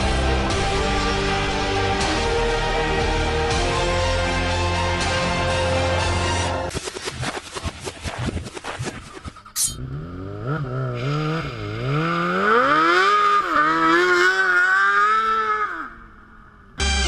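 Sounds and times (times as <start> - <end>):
motorcycle engine revving: 9.4 - 16.9.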